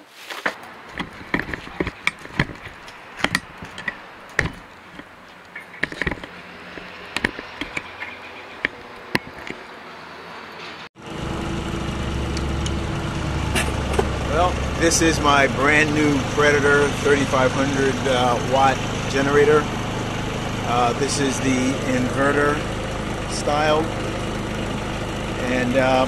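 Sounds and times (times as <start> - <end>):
sharp clicks and knocks: 0.5 - 9.7
generator engine humming: 0.6 - 26.0.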